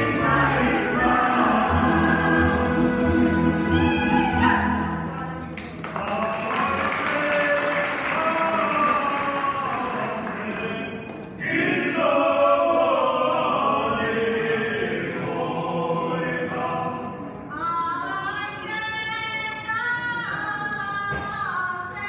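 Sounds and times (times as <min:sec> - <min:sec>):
choir singing: 0:00.0 - 0:05.1, 0:10.0 - 0:18.1.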